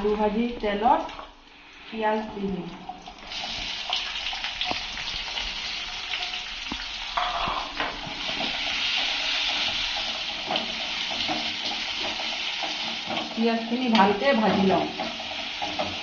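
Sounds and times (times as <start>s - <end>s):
onions sizzling in hot oil: 3.3s - 16.0s
metal spoon scraping a pan: 7.2s - 13.4s.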